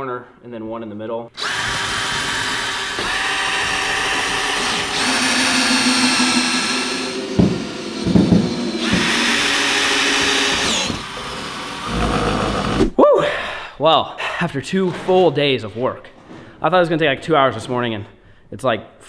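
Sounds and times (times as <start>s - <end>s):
cordless drill whining: 1.4s - 12.8s
low knocks: 6.6s - 9.5s.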